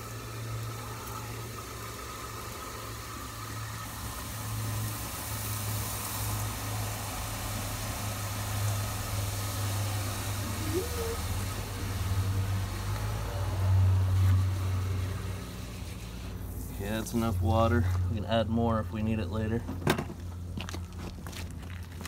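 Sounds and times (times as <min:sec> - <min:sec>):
low steady rumble: 0:00.0 - 0:06.8
hose spray into plastic bucket: 0:14.1 - 0:17.3.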